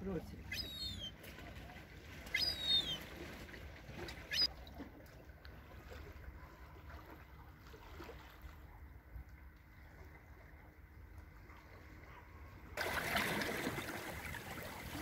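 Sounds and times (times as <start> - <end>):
young gull begging calls: 0.5 - 1.1, 2.3 - 3.0, 4.3 - 4.5
small waves washing against rocks: 12.8 - 15.0.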